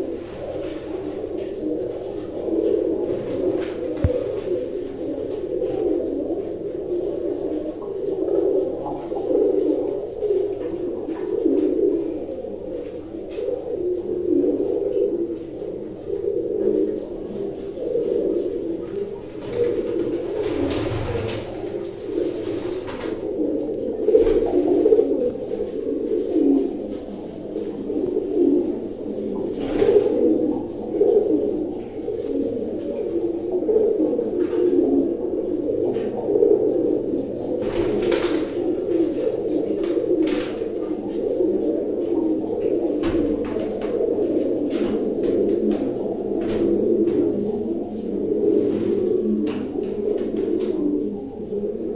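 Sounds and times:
pigeons cooing: 0.0s - 51.9s.

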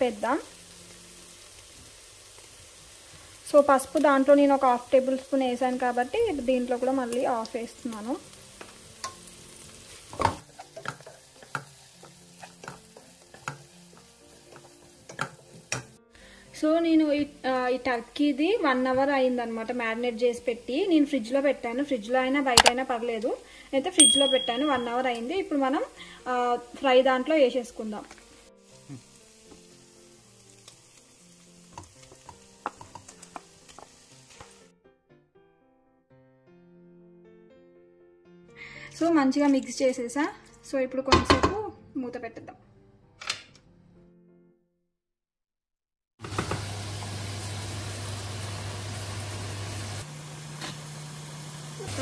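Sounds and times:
onions sizzling in a pot: 0.0s - 34.7s, 46.2s - 52.0s
spatula scraping a pan: 9.9s - 15.7s
spatula clicks: 22.6s - 22.8s.

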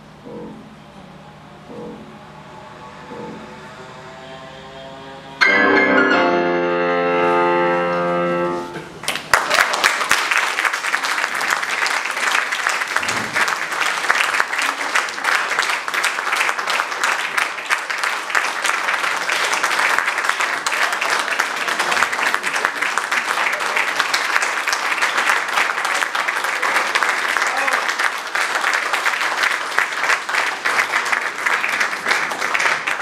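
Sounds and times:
loud piano chord: 5.4s - 8.9s
audience applauding: 9.0s - 33.0s.

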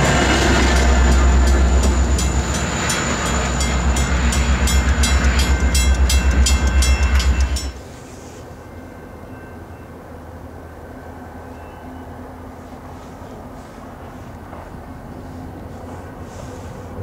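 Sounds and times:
crossing bell ringing: 0.0s - 12.2s
diesel locomotive engine rumbling: 0.0s - 17.0s.

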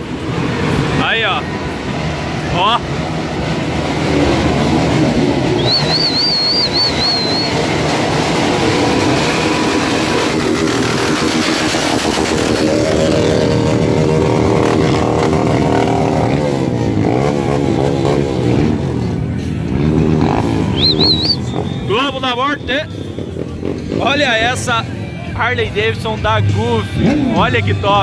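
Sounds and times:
motorcycle engines revving: 0.0s - 28.0s
high warbling whistle: 5.5s - 7.8s, 20.6s - 21.9s.

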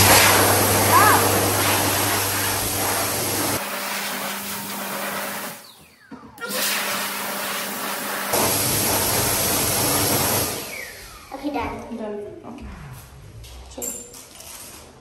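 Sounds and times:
hand dryer blowing: 0.0s - 5.8s, 6.4s - 11.4s.

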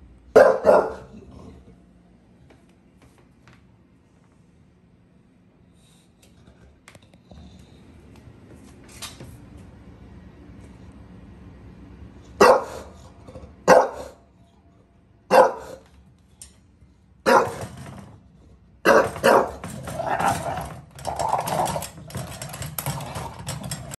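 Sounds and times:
dog barking: 0.3s - 1.2s, 12.4s - 13.0s, 13.6s - 14.2s, 15.3s - 15.8s, 17.2s - 17.6s, 18.8s - 19.6s
dog growling: 0.9s - 1.9s, 18.5s - 24.0s
pet gate rattling: 17.3s - 18.2s, 18.9s - 24.0s.

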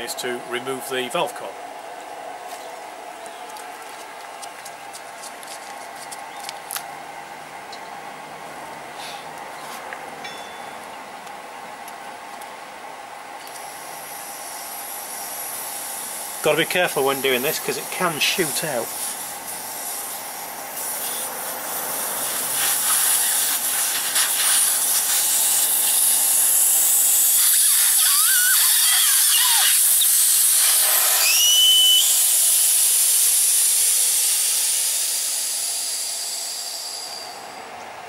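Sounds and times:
air hissing out of tyre valve: 13.6s - 16.4s, 18.7s - 37.5s
brief whistling tones: 31.2s - 32.2s.

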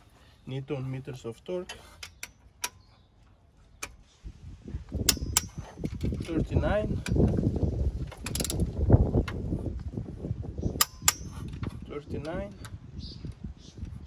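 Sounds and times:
wrench ratcheting: 5.0s - 7.3s, 8.2s - 8.7s, 10.8s - 11.7s.

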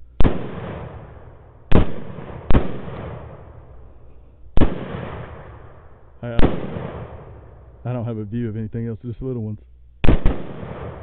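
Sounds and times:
rifle shots: 0.1s - 7.8s, 10.0s - 11.0s.

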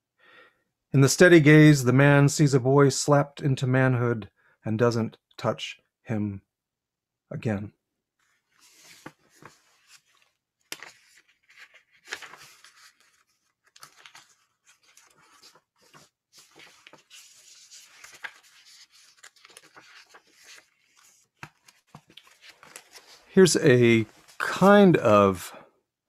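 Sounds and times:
paper pages rustling: 8.2s - 25.1s.

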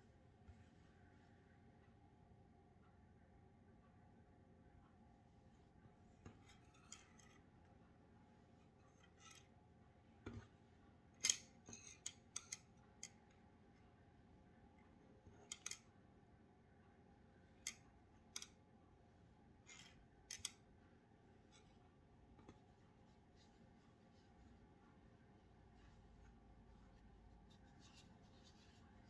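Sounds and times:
knitting needles clicking: 11.2s - 13.3s, 15.4s - 15.9s, 17.6s - 18.6s, 19.7s - 20.7s.

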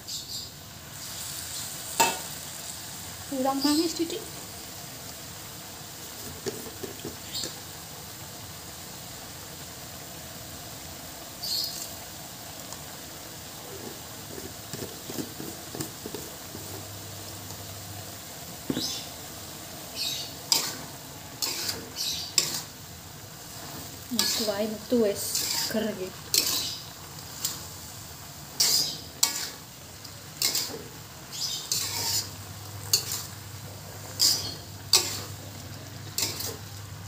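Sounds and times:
food sizzling in a wok: 0.0s - 37.0s
metal spatula scraping a pan: 20.0s - 22.8s, 23.4s - 36.8s.

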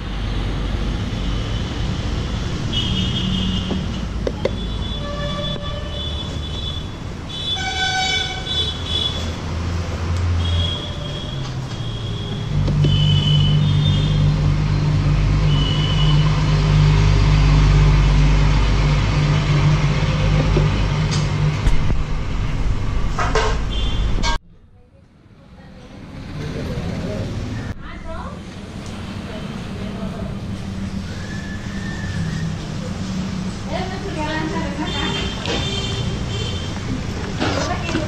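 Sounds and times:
vehicle engines humming: 0.0s - 24.8s, 25.4s - 38.0s
car horns honking: 2.7s - 9.4s, 10.4s - 14.4s, 23.6s - 24.4s, 34.6s - 37.0s.

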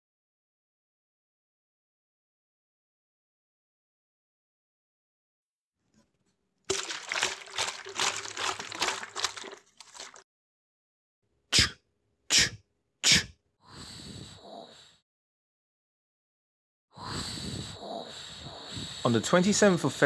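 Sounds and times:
liquid glugging and splashing: 6.7s - 10.2s.

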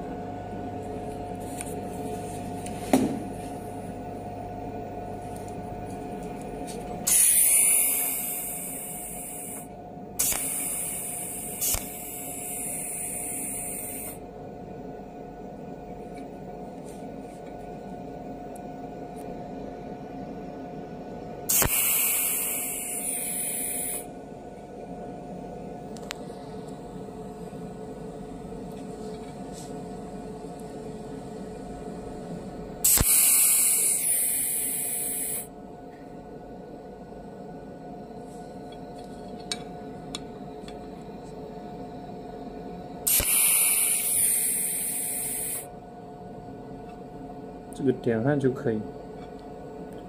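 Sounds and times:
machine hum: 0.0s - 50.0s
welding torch hissing buzz: 6.6s - 14.2s, 21.4s - 24.2s, 32.8s - 35.6s, 43.0s - 45.8s
sharp click: 10.2s - 10.6s, 21.5s - 21.9s, 32.9s - 33.2s.

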